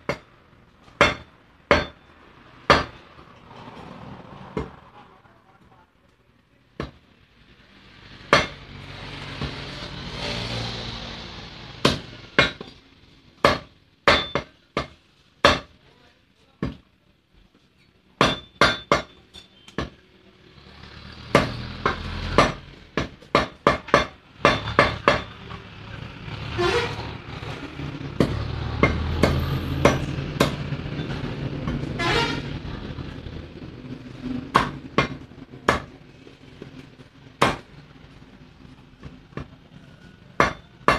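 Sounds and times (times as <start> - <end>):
cleaver chopping on wooden block: 1.0 - 2.0, 2.7 - 3.0, 11.8 - 12.7, 13.4 - 15.7, 18.2 - 19.1, 19.7 - 20.0, 21.3 - 25.3, 34.5 - 35.9, 37.4 - 37.6, 40.4 - 40.9.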